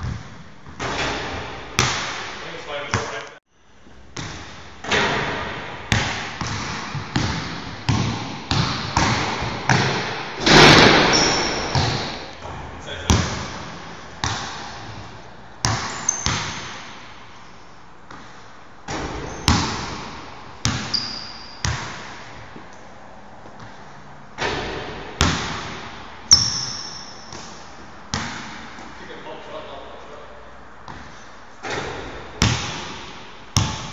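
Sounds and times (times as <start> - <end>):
basketball bouncing on wooden floor: 0.0 - 2.3, 4.2 - 17.1, 18.9 - 22.7, 24.4 - 28.9, 31.7 - 33.9.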